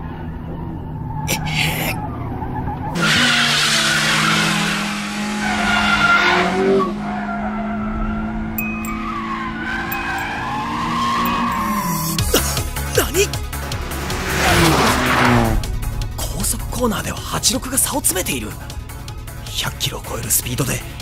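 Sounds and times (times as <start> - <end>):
tires squealing: 0.0 - 12.9, 13.5 - 15.8
sports car engines revving high: 2.0 - 16.0.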